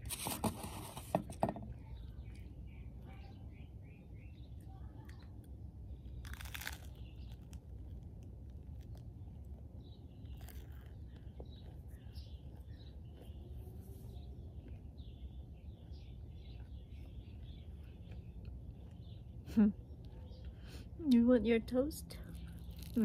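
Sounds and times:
small birds chirping: 0:00.7 - 0:23.0
crunchy bite of toast: 0:06.0 - 0:09.4, 0:10.2 - 0:12.8, 0:22.3 - 0:23.0
chewing crunches: 0:06.0 - 0:09.6, 0:10.2 - 0:13.5, 0:22.2 - 0:23.0.

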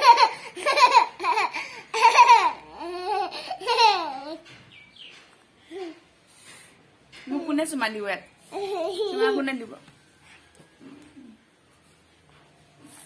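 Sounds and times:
toddler laughing: 0:00.0 - 0:04.4, 0:08.5 - 0:09.5.

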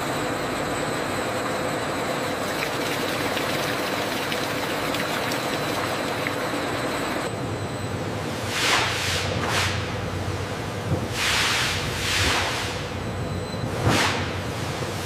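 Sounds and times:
machine hum: 0:00.0 - 0:08.4
liquid pouring into steel vat: 0:02.4 - 0:07.2.

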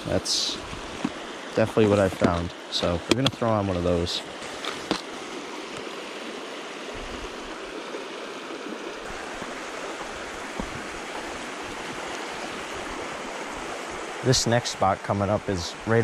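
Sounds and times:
creek water rushing: 0:00.0 - 0:16.0.

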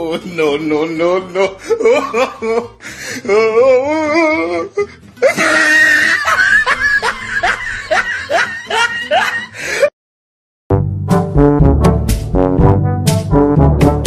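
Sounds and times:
music: 0:00.0 - 0:09.9, 0:10.7 - 0:14.0
laughter: 0:01.4 - 0:02.7, 0:05.2 - 0:09.9.

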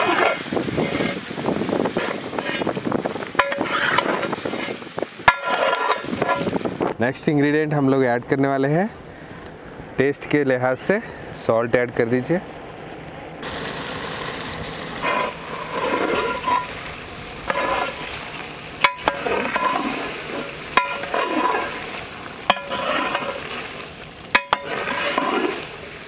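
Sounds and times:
metal ladle scraping a pot: 0:00.0 - 0:06.8, 0:15.0 - 0:26.0
curry sizzling: 0:00.0 - 0:06.9, 0:13.4 - 0:26.0.

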